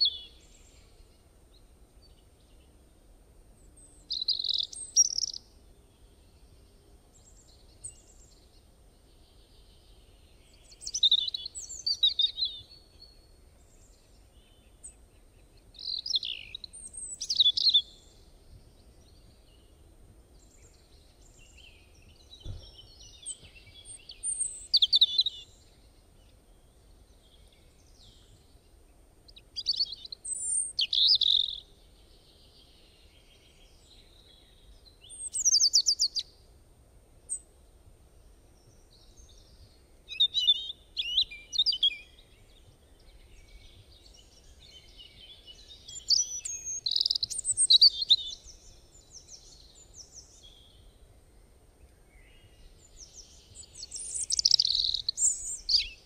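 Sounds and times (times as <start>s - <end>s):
bird chirping and singing: 3.8s - 5.4s, 9.8s - 13.2s, 15.8s - 18.1s, 20.5s - 25.6s, 29.6s - 31.6s, 32.5s - 36.2s, 38.9s - 50.8s, 52.2s - 56.0s.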